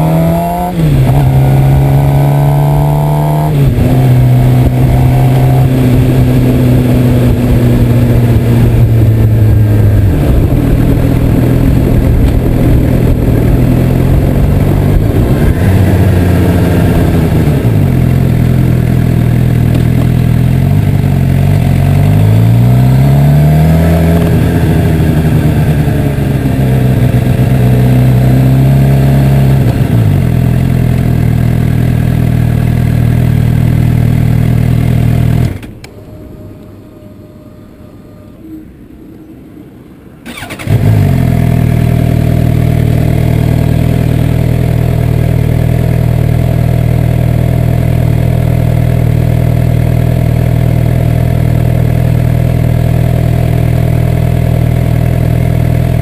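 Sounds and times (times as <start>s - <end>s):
motorcycle engine revving: 0.0s - 38.6s, 40.2s - 56.0s
road noise: 0.0s - 56.0s
wind noise: 3.4s - 17.9s.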